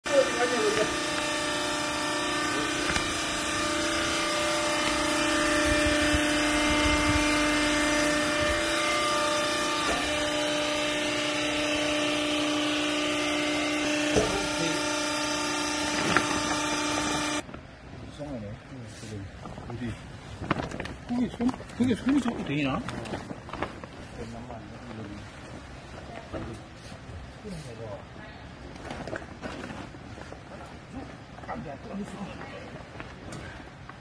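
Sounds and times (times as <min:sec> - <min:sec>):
pump motor whining: 0:00.0 - 0:17.5.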